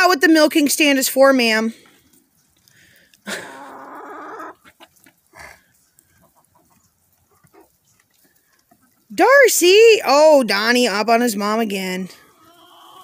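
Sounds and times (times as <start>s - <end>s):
chicken calling: 3.3s - 9.1s, 12.2s - 13.0s.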